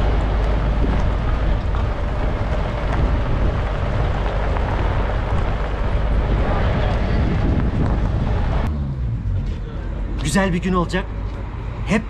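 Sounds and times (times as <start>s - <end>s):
wind buffeting microphone: 0.0s - 8.7s
off-road vehicle engine rumble: 0.0s - 12.0s.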